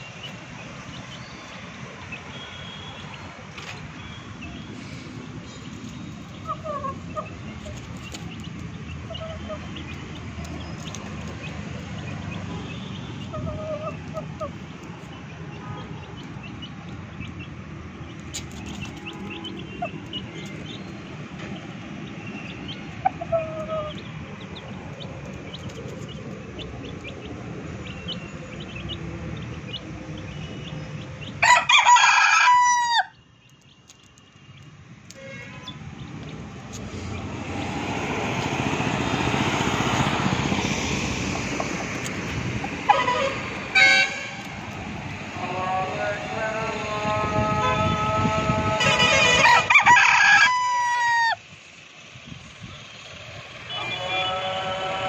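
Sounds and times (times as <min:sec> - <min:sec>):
rooster crowing: 0:31.4 - 0:33.2, 0:48.8 - 0:51.4, 0:53.7 - 0:55.0
broad rushing noise: 0:35.8 - 0:55.0.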